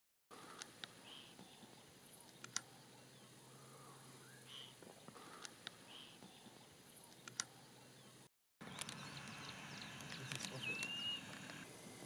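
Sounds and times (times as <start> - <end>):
high bird chirps and ticks: 0.5 - 3.3, 4.4 - 11.6
whistled bird note: 9.8 - 11.3.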